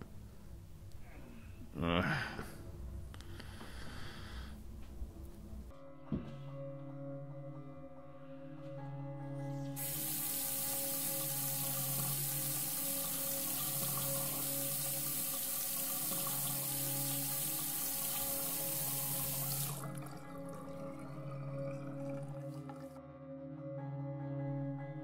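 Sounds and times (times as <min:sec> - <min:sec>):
low music drone: 0:04.9 - 0:25.0
water running into sink: 0:09.8 - 0:23.0.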